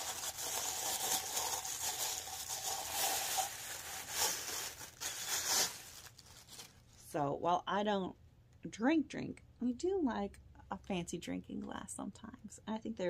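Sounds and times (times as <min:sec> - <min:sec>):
wrapping paper crinkling: 0:00.0 - 0:07.0.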